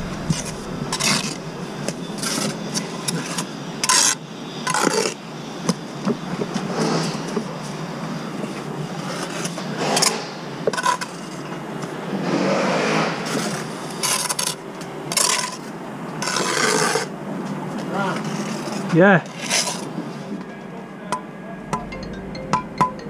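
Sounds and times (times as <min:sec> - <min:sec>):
trowel scraping bricks: 0:13.3 - 0:17.1, 0:18.2 - 0:19.9.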